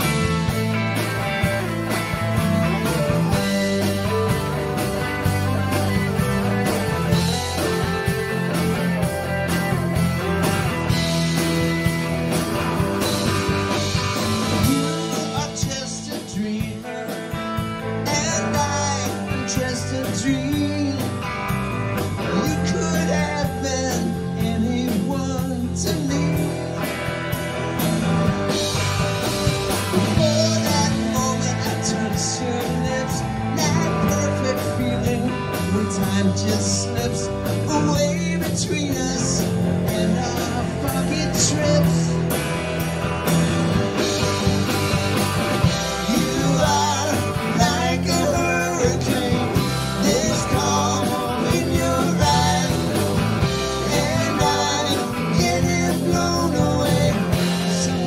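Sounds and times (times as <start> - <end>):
live rock band playing: 0.0 - 58.0
man singing lead vocal: 14.6 - 21.5, 22.1 - 26.8, 30.0 - 42.4, 45.6 - 58.0.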